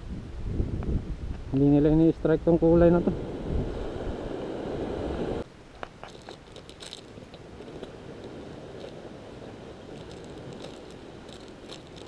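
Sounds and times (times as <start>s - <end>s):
steady rushing noise: 1.1s - 5.5s
plastic bag crinkling: 6.0s - 9.0s, 9.9s - 12.0s.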